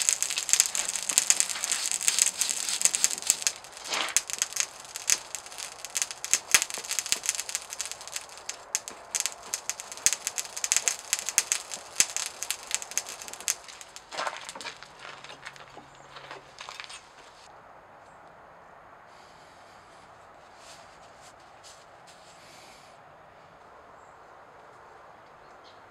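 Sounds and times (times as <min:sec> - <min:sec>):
crackling and clicking scale: 0:00.0 - 0:17.3.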